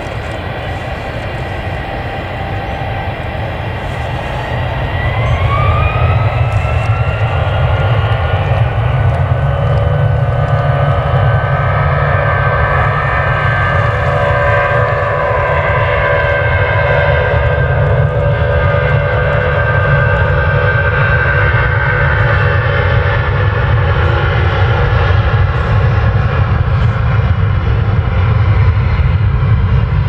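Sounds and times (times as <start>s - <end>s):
jet engine low rumble: 0.0s - 30.0s
jet engine whine: 0.0s - 30.0s.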